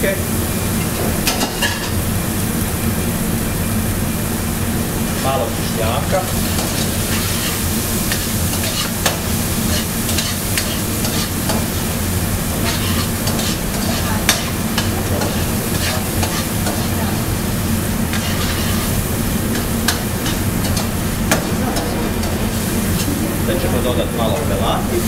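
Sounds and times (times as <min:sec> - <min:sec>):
steady low hum: 0:00.0 - 0:25.0
vegetables sizzling in a wok: 0:00.0 - 0:25.0
metal utensils scraping a wok: 0:06.2 - 0:17.3, 0:18.1 - 0:23.1.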